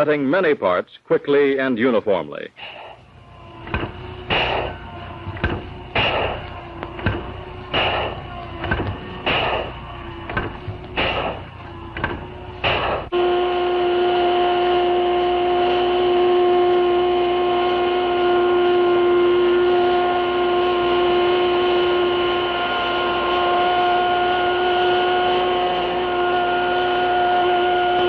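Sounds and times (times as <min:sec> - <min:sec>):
metal-cutting spindle whine: 0:02.7 - 0:28.0.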